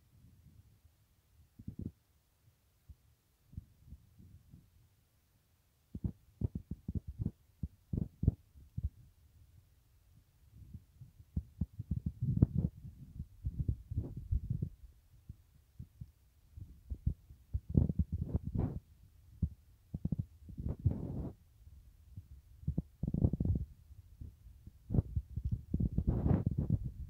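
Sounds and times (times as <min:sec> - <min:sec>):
wind buffeting microphone: 0:11.4 - 0:18.8, 0:19.4 - 0:21.4, 0:22.2 - 0:27.0.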